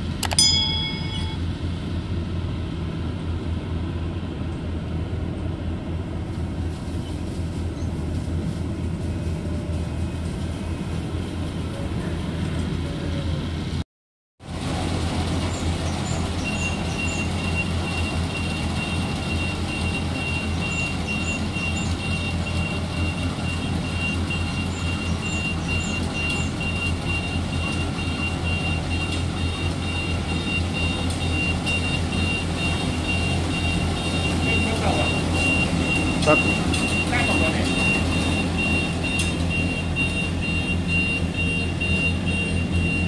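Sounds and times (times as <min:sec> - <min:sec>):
diesel engine rumbling: 0:00.0 - 0:13.8, 0:14.4 - 0:43.0
high-pitched electronic beep: 0:00.2 - 0:01.4.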